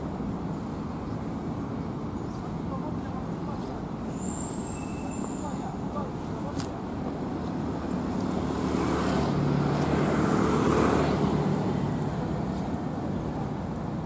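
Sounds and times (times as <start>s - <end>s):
steady traffic noise: 0.0s - 14.0s.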